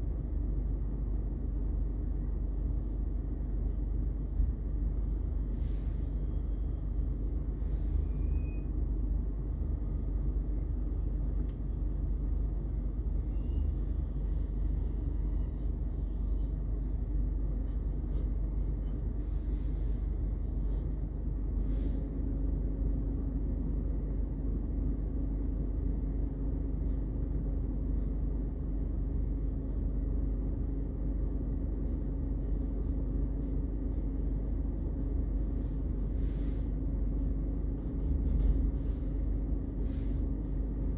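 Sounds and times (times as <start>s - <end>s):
air hisses: 5.5s - 6.3s, 19.2s - 20.2s, 21.6s - 22.4s, 35.5s - 36.8s, 38.8s - 40.4s.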